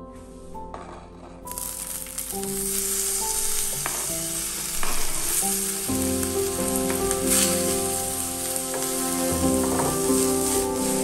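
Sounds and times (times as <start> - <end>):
vegetables sizzling in hot oil: 1.5 - 11.0.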